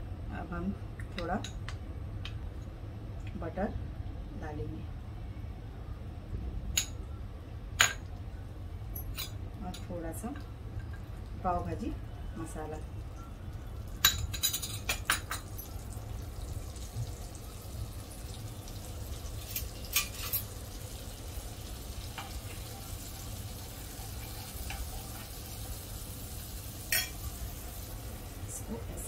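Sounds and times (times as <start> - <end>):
steady low hum: 0.0 - 29.0
butter sizzling in a frying pan: 13.0 - 29.0
spoon clinking against pan: 26.9 - 27.2.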